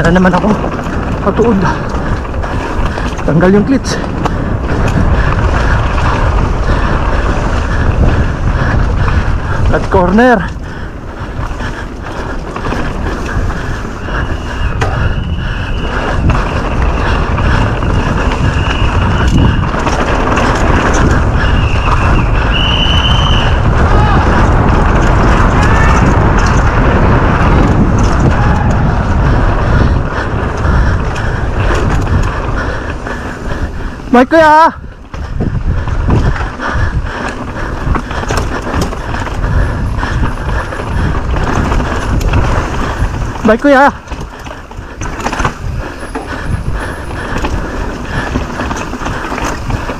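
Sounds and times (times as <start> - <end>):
bike tyres rumbling on trail: 0.0 - 49.9
wind rushing over microphone: 0.0 - 49.9
high squeal: 21.4 - 23.6.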